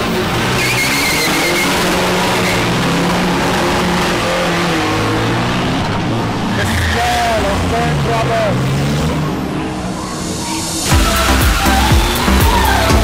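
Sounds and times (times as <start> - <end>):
truck engines revving hard: 0.0 - 13.0
tyre squeal: 0.4 - 3.2, 4.1 - 7.8, 9.2 - 13.0.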